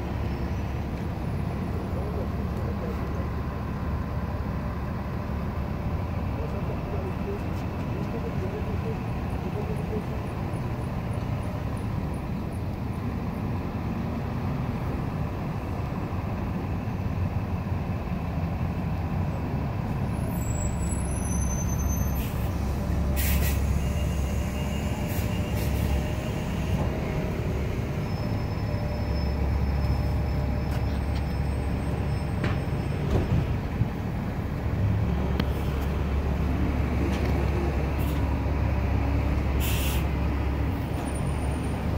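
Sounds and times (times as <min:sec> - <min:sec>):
city traffic rumble: 0:00.0 - 0:41.9
short hisses: 0:23.2 - 0:24.4, 0:39.6 - 0:40.1.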